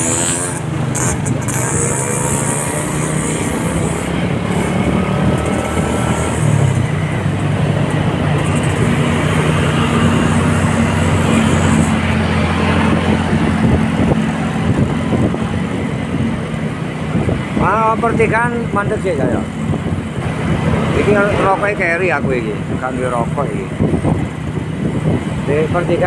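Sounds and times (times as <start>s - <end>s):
motorcycle engine running: 0.0s - 20.8s
road and traffic noise: 0.0s - 26.0s.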